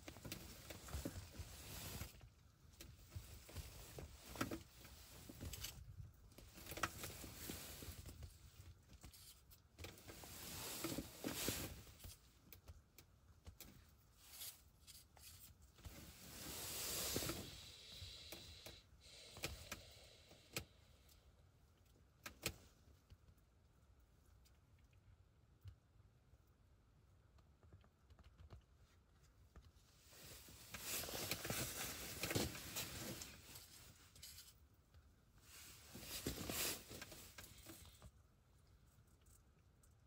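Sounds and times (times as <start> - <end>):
faint rustling: 0.0 - 20.2, 28.7 - 40.0
hiss: 16.2 - 20.6.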